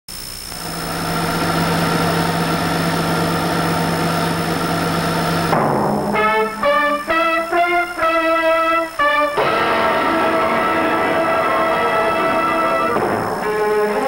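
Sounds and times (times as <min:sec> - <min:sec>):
engine-like drone: 0:00.5 - 0:07.1, 0:09.4 - 0:14.0
plucked guitar notes: 0:09.3 - 0:14.0.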